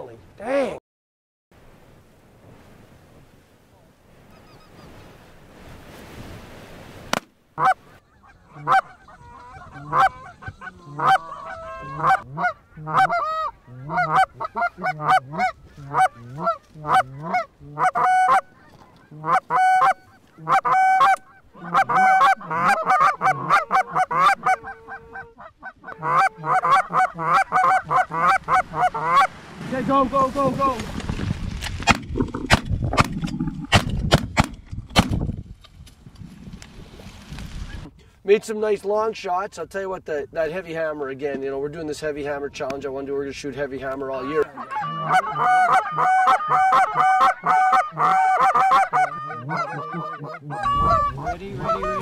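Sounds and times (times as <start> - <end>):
faint wind hiss: 1.6 - 14.9
geese honking: 7.6 - 29.5, 44.1 - 52.0.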